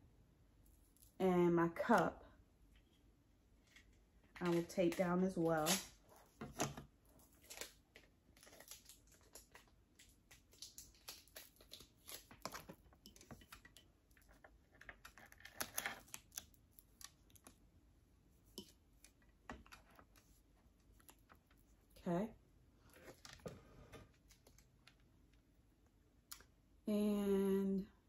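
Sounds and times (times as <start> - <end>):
small clicks of plastic handling: 23.0 - 25.4.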